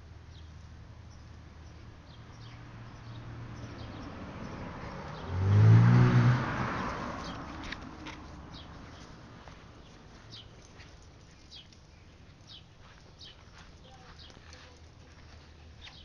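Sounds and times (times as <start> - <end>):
motor vehicle passing by: 0.4 - 10.8.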